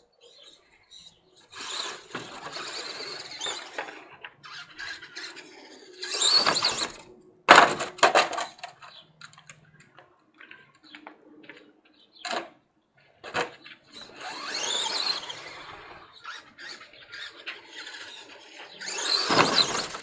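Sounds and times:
toy truck crash landing: 0:01.5 - 0:04.1, 0:06.0 - 0:08.8, 0:13.3 - 0:16.0, 0:18.8 - 0:20.0
knocks and rattles on dirt: 0:06.2 - 0:12.6, 0:18.6 - 0:20.0
electric motor whining: 0:14.0 - 0:20.0.

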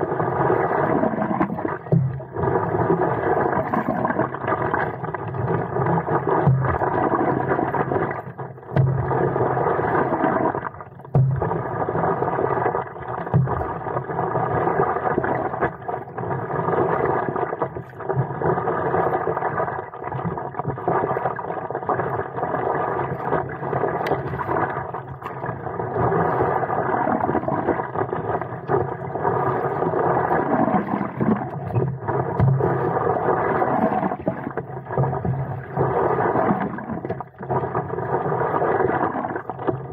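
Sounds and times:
paddle strokes in water: 0:22.4 - 0:39.9
water sloshing against paddleboard: 0:23.2 - 0:37.6.

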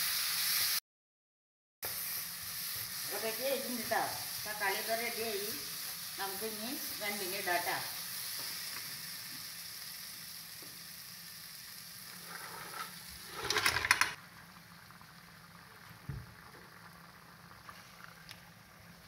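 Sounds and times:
masala sizzling in a pan: 0:00.0 - 0:00.8, 0:01.8 - 0:19.0
clatter of food into pan: 0:12.1 - 0:14.2.

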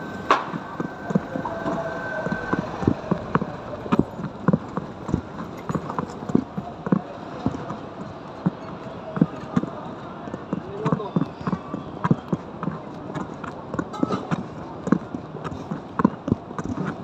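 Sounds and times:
steady high tone: 0:00.0 - 0:05.1
street noise: 0:00.0 - 0:17.0
hard footsteps on pavement: 0:00.1 - 0:17.0.

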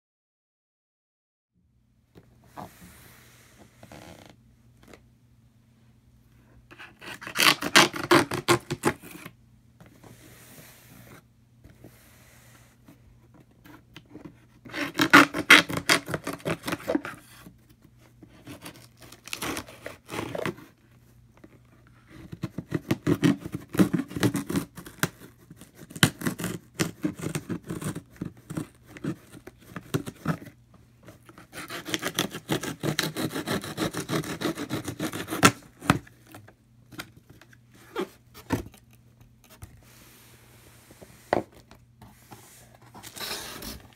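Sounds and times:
blade cutting packing tape: 0:06.7 - 0:09.3, 0:14.7 - 0:17.2, 0:18.4 - 0:20.6, 0:22.3 - 0:30.5, 0:31.3 - 0:36.1
hands scratching cardboard box: 0:06.7 - 0:09.3, 0:13.6 - 0:20.8, 0:22.0 - 0:38.8, 0:40.9 - 0:43.9.

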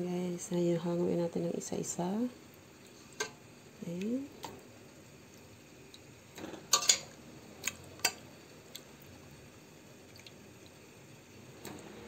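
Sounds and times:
clinks against a pot: 0:06.7 - 0:07.1.

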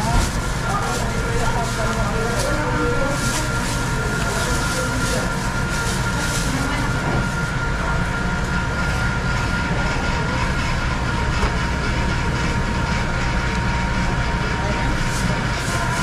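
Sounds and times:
plastic bag crinkling: 0:00.0 - 0:07.5
machine rumble with whines: 0:00.0 - 0:16.0.

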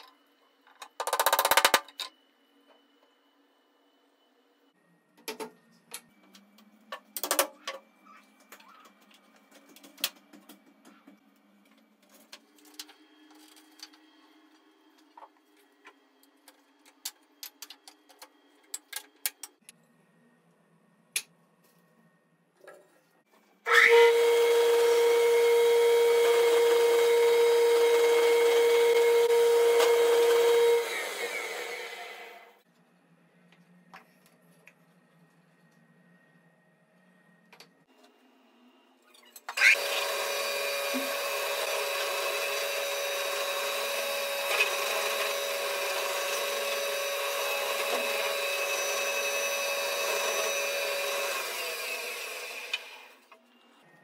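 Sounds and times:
electric power tool humming: 0:23.7 - 0:32.6, 0:39.6 - 0:53.2.

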